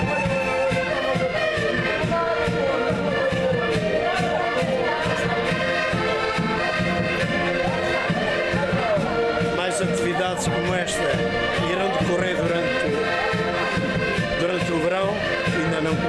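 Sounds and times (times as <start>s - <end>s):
people singing along: 0.0s - 12.1s
concertinas playing folk tune: 0.0s - 16.0s.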